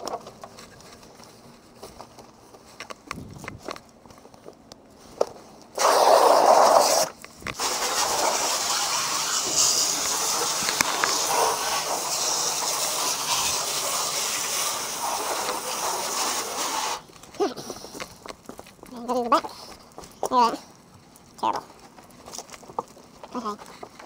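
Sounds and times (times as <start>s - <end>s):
garden hose spraying water: 5.8s - 18.0s.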